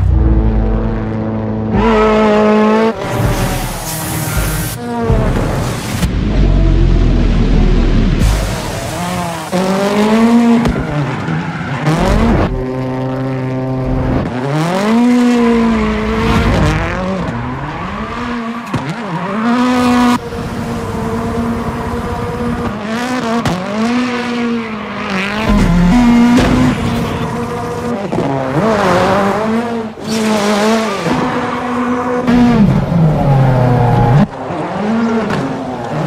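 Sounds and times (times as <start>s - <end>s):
car engine revving: 0.0s - 36.0s
tire squeal: 1.8s - 6.0s, 30.0s - 36.0s.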